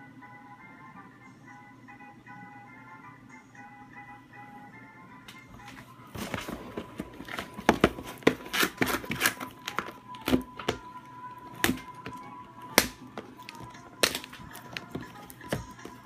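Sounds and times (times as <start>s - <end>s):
faint organ music: 0.0s - 16.0s
cardboard box taps and rustles: 6.2s - 10.8s.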